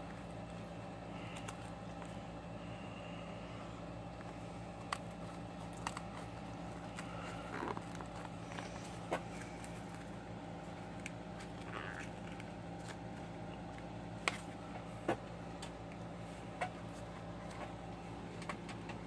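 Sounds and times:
steady low hum: 0.0s - 19.0s
plastic clicks and crinkles: 4.2s - 16.0s
plastic packaging rustling: 4.6s - 14.6s.

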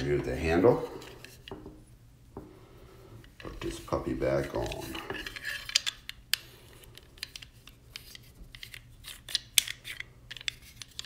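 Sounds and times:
plastic nut clicking: 4.6s - 11.0s.

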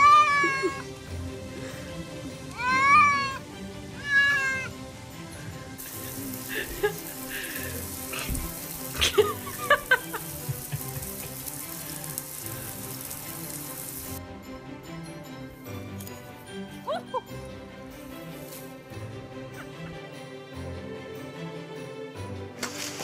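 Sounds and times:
cat meowing: 0.0s - 0.9s, 2.5s - 3.4s, 4.0s - 4.7s
cat crying: 0.0s - 1.0s, 2.5s - 4.7s
shower water hissing: 0.0s - 14.2s, 17.9s - 19.8s.

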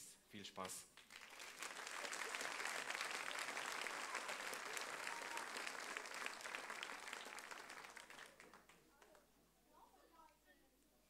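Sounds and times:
audience applause: 1.0s - 9.2s.

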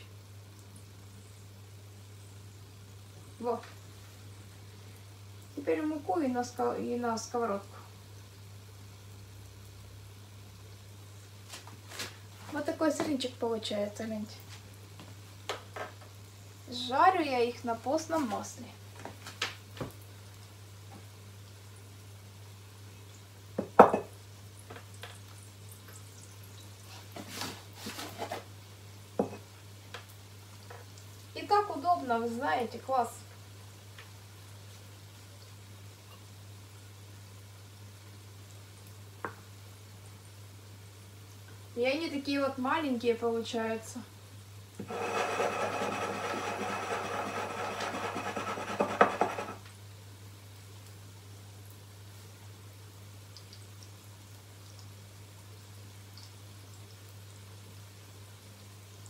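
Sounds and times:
glass knocking on countertop: 23.6s - 24.1s
cup scraping on countertop: 27.8s - 28.4s, 44.8s - 49.6s.

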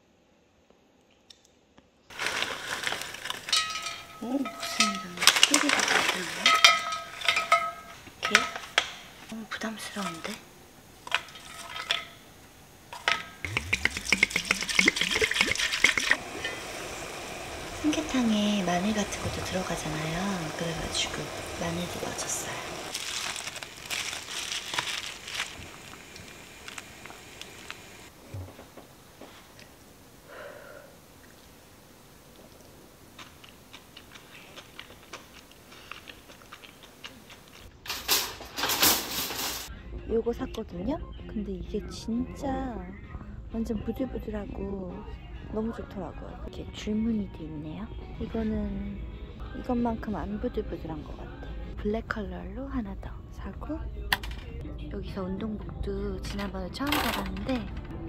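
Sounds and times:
liquid sounds: 13.0s - 28.1s
loud burst of noise: 13.4s - 23.9s.

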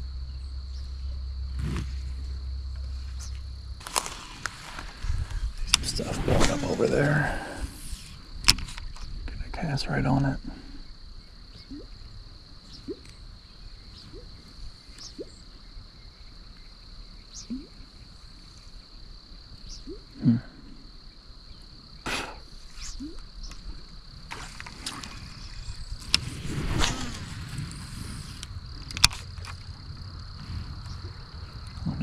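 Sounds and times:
high insect drone: 0.0s - 32.0s
lure blooping on water: 17.5s - 17.8s.

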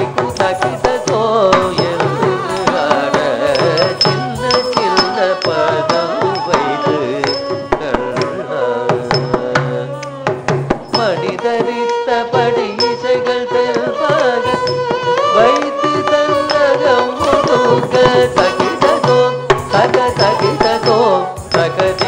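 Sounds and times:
hand drum strokes: 0.0s - 11.8s
ornamented gliding melody: 0.6s - 7.7s.

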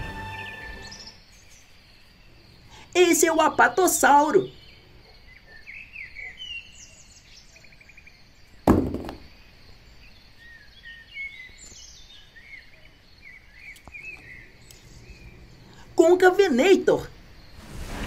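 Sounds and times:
faint birds chirping: 0.0s - 18.0s
toy dropped into cardboard box: 8.7s - 9.3s.

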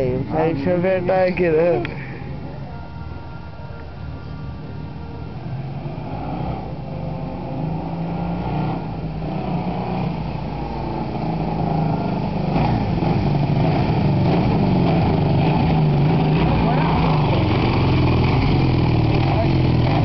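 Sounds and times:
motorcycle engine running: 5.6s - 20.0s.

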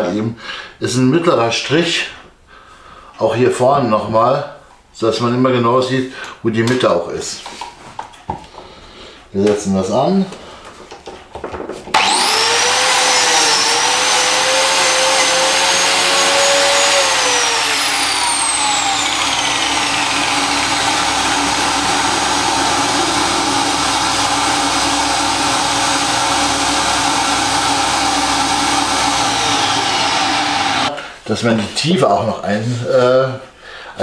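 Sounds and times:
biscuit joiner motor whine: 11.9s - 31.0s
dust extractor suction noise: 11.9s - 31.0s.

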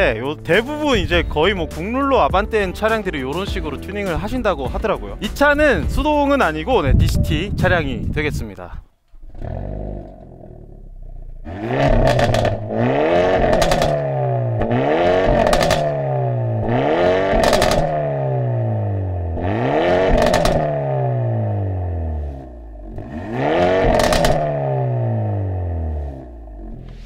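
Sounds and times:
car engine idling: 9.0s - 27.0s
car engine revving hard: 9.2s - 27.0s.

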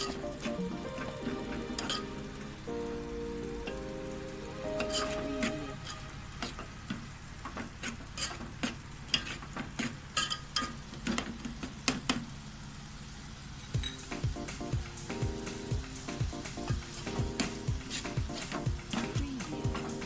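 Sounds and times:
food sizzling: 0.0s - 11.7s, 12.3s - 20.0s
spoon scraping metal pot: 7.8s - 8.4s.

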